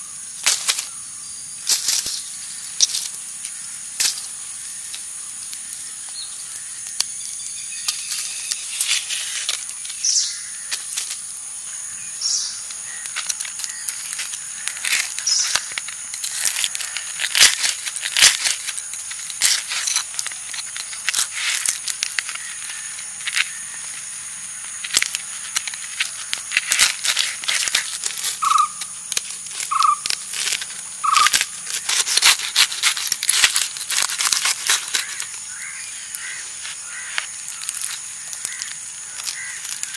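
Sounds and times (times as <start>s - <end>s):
insect drone: 0.0s - 39.9s
knife cracking charred crust: 2.8s - 11.5s, 12.6s - 39.9s
bird calling: 9.7s - 11.0s, 11.6s - 16.0s, 28.2s - 29.0s, 29.6s - 32.0s, 34.6s - 39.9s.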